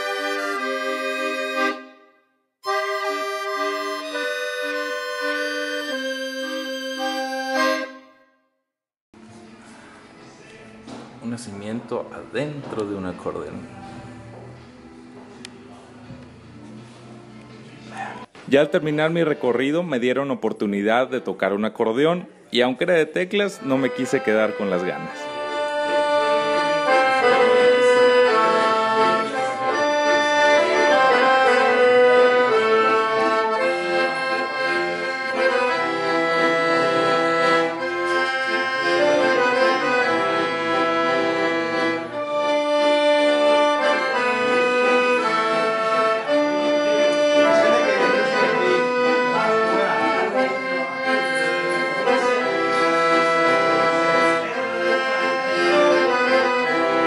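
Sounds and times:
piano accordion melody: 0.0 - 8.4, 11.2 - 21.9, 22.6 - 57.0.

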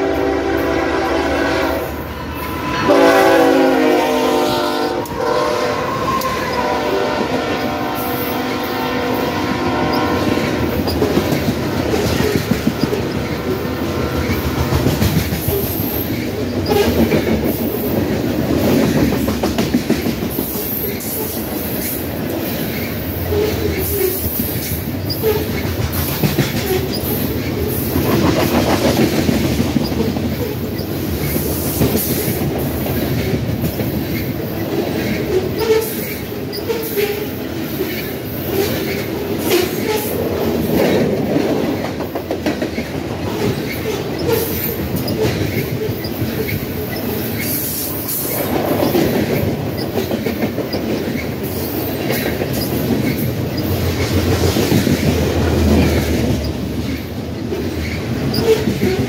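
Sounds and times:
train wheels rumbling on rails: 0.0 - 59.0
high-pitched wheel squeals: 1.6 - 3.5, 5.0 - 6.9
wheels clacking: 10.2 - 36.7.

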